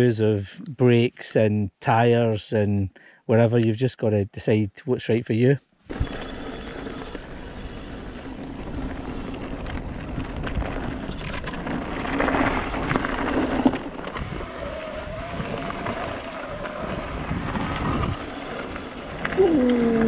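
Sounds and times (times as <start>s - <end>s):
bike rattling and knocking: 5.9s - 19.2s
tyres rolling over dirt: 5.9s - 20.0s
wind on microphone: 7.6s - 20.0s.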